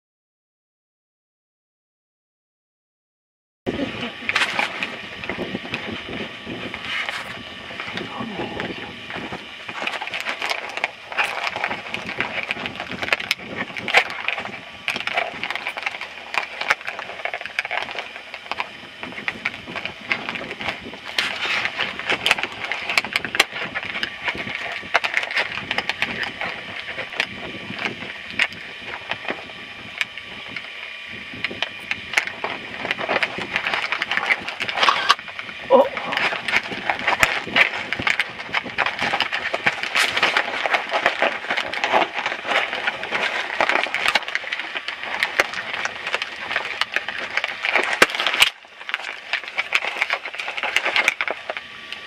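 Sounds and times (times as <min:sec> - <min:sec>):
footsteps crunching on snow: 0:03.8 - 0:29.5.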